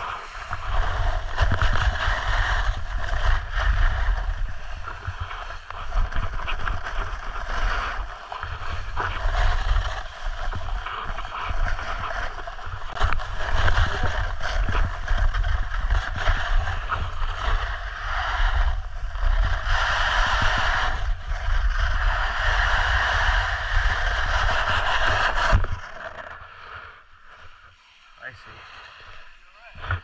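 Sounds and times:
snowboard scraping on snow: 0.0s - 26.7s
wind rumbling on microphone: 0.0s - 27.7s.

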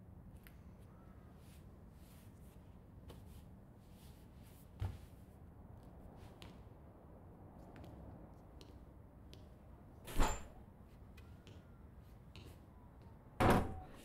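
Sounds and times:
door shutting with a knock: 13.4s - 14.0s.

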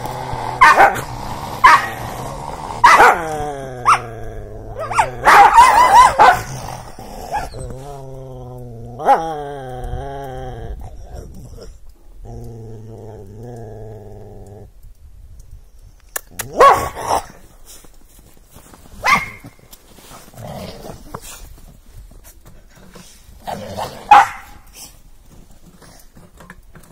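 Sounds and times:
dog growling: 0.0s - 14.7s, 20.0s - 21.5s, 22.9s - 25.0s
dogs barking sharply: 0.6s - 1.9s, 2.8s - 3.2s, 4.8s - 6.5s, 16.5s - 17.2s, 19.0s - 19.6s, 24.0s - 24.6s.

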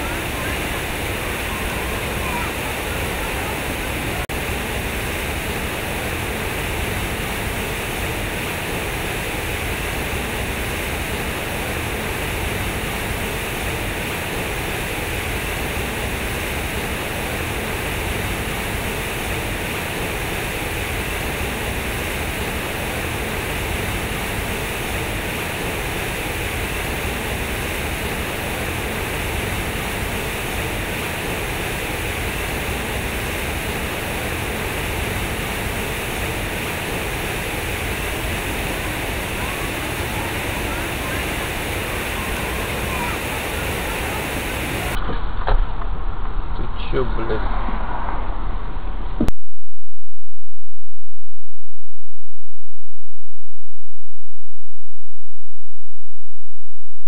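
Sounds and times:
fountain water splashing into pool: 0.0s - 45.0s.

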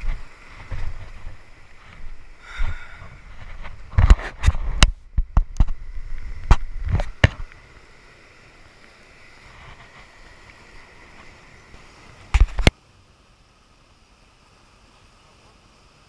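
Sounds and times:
faint surf and wind hiss: 0.0s - 16.0s.

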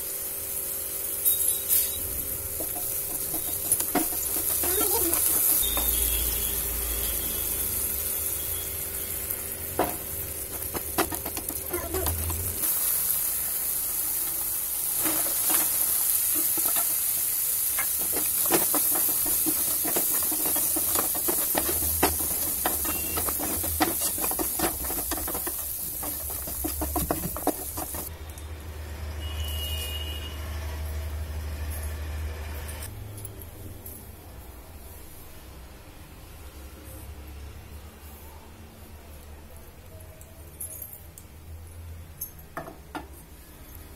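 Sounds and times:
food sizzling in a frying pan: 0.0s - 28.1s
wooden spatula scraping a pan: 2.6s - 6.2s, 15.0s - 28.1s
spatula knocking against pan: 17.8s - 28.1s.

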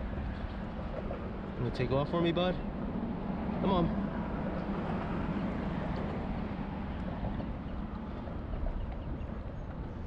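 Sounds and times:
wind buffeting microphone: 2.7s - 10.0s
water lapping against kayak: 4.2s - 10.0s.

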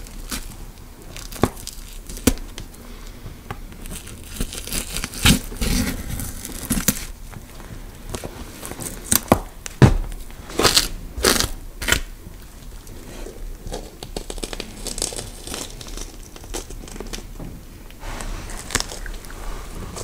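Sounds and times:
crackling and rustling: 0.0s - 20.0s
sharp crunching snaps: 0.0s - 20.0s
steady noise: 17.6s - 20.0s.

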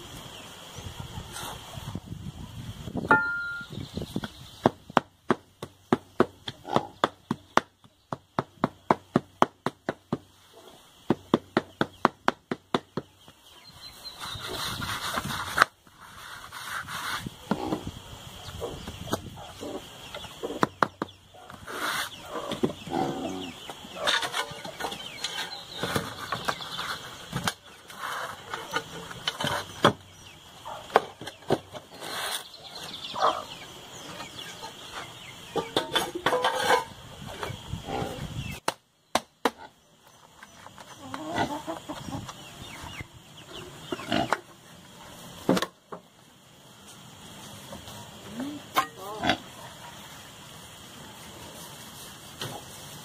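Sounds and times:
clucking calls: 17.2s - 30.0s, 30.6s - 38.7s, 39.5s - 45.1s.

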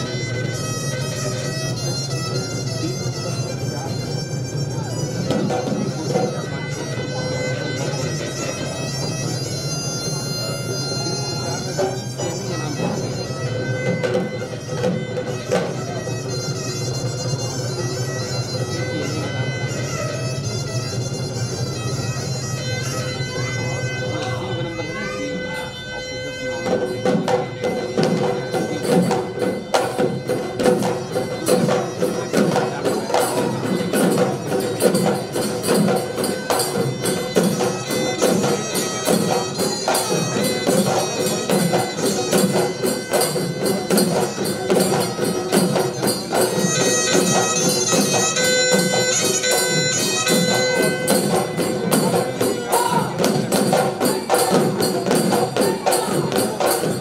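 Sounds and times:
drums beating fast rhythm: 0.0s - 24.0s, 26.5s - 57.0s
reedy horn pipe melody: 0.0s - 54.9s
jingling percussion: 0.0s - 57.0s.

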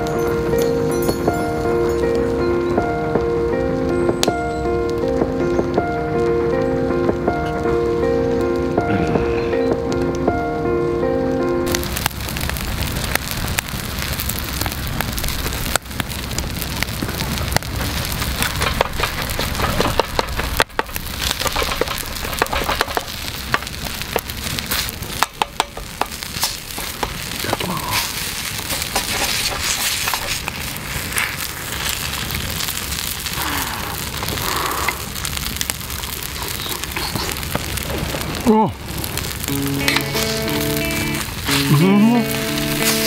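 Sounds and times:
fire crackling: 0.0s - 43.0s
food sizzling on griddle: 11.6s - 43.0s
metal spatulas scraping griddle: 28.7s - 30.4s.

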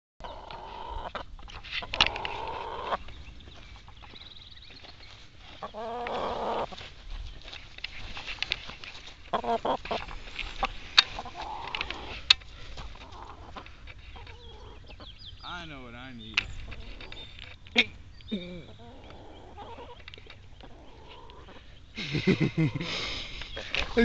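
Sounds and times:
chickens clucking: 0.2s - 15.6s, 16.3s - 24.0s.

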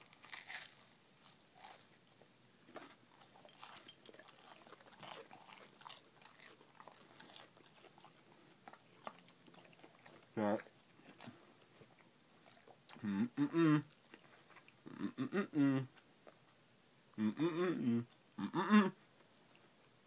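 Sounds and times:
chewing sandwich crunches: 0.0s - 2.0s, 2.7s - 13.1s.

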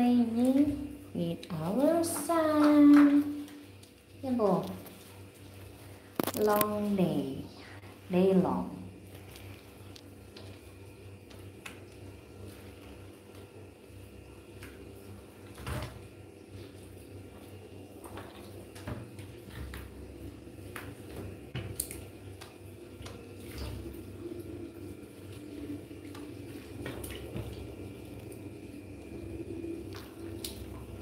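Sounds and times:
water splashing in a dipper: 0.0s - 7.4s, 8.1s - 31.0s.

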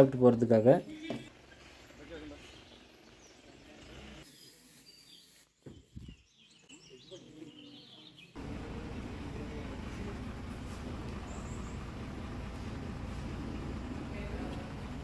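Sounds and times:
small birds chirping: 0.9s - 9.3s, 10.7s - 12.7s
bus engine rumble: 8.4s - 15.0s.

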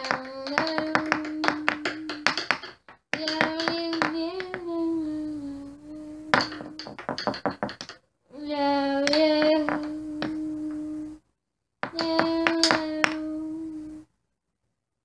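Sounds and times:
child singing long note: 0.0s - 2.3s, 3.2s - 6.8s, 8.4s - 11.2s, 12.0s - 14.0s
sharp taps or claps: 0.0s - 4.6s, 6.3s - 8.0s.

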